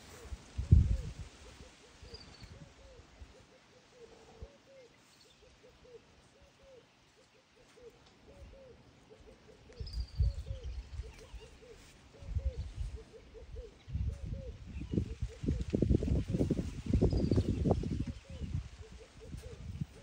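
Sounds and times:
bird calling: 0.0 - 15.6.

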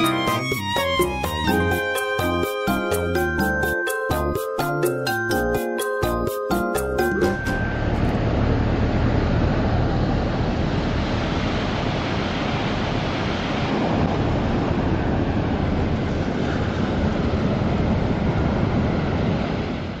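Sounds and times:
ocean waves breaking on beach: 9.3 - 20.0.

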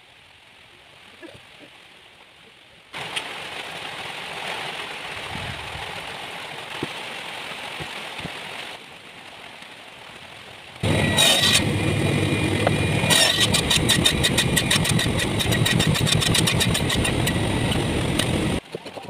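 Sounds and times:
steady rain hiss: 0.0 - 18.7.

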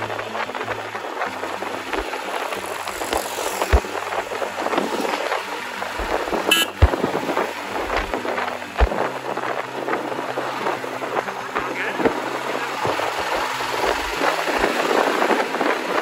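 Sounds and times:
motorcycle engine running: 0.0 - 16.0
wind buffeting microphone: 0.0 - 16.0
brief sharp tone: 6.5 - 6.9.

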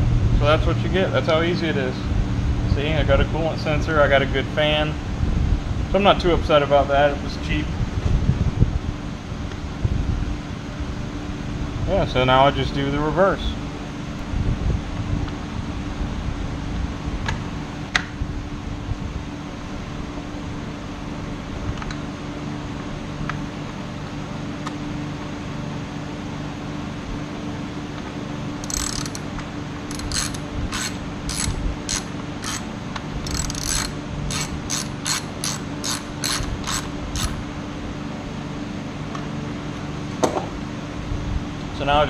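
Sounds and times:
steady hum: 0.0 - 42.0
ratchet wrench clicking: 28.6 - 37.4.

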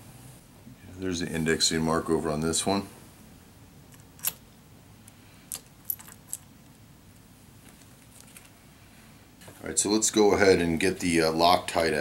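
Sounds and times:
metal caps clicking onto rings: 5.0 - 6.5.

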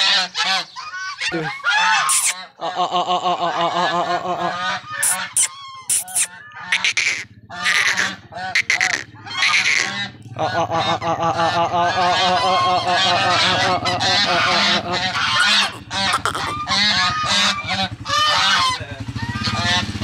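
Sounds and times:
geese honking: 0.0 - 2.6, 3.9 - 19.9
steady low hum: 12.8 - 18.0.

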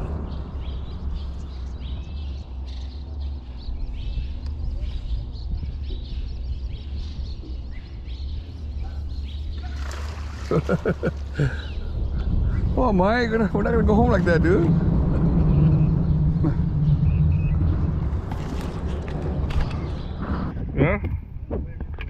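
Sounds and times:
low wind rumble on microphone: 0.0 - 22.0
man's voice: 12.6 - 14.8.

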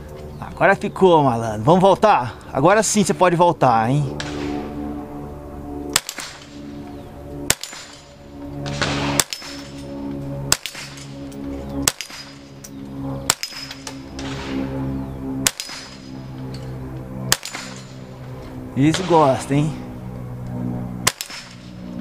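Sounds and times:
rifle shots: 4.2 - 4.7, 5.9 - 6.6, 7.5 - 9.8, 10.5 - 11.1, 11.8 - 12.5, 13.2 - 14.7, 15.4 - 16.1, 17.3 - 17.9, 21.0 - 21.8
bullets hitting steel paddles: 5.9 - 6.7, 7.4 - 14.7, 15.4 - 19.4, 21.0 - 21.8.

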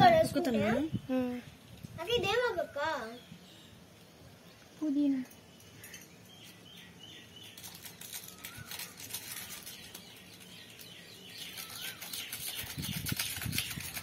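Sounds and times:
birds chirping: 0.0 - 14.0
fingers rustling through hair: 7.5 - 14.0.

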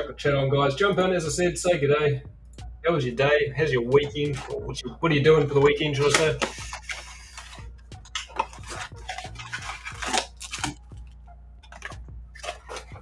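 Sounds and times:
foil packs crinkling: 5.4 - 13.0.

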